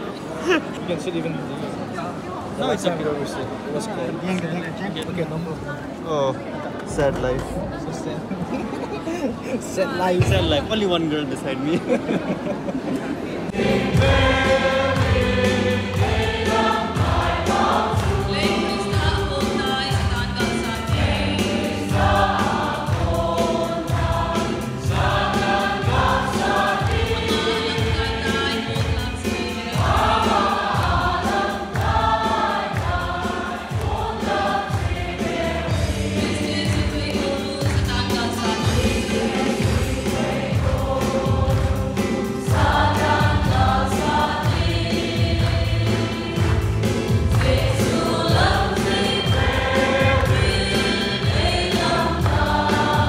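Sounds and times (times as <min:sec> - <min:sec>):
group singing gospel: 0:11.8 - 0:53.0.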